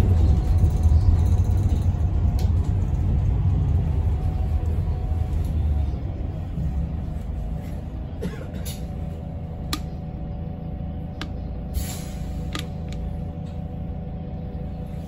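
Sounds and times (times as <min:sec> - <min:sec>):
bus drivetrain rumble: 0:00.0 - 0:15.0.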